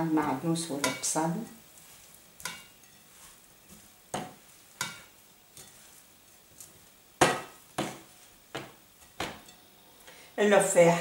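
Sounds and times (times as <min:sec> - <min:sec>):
wooden spoon knocking on bowl: 0:04.1 - 0:05.1, 0:07.2 - 0:09.5.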